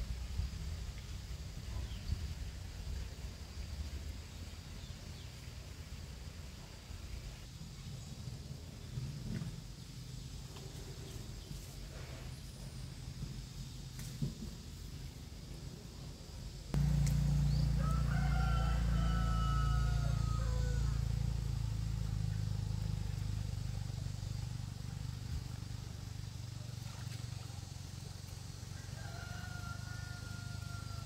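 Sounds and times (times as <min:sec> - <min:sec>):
steady low rumble: 0:16.6 - 0:28.7
rooster crowing: 0:16.8 - 0:21.6, 0:28.7 - 0:31.0.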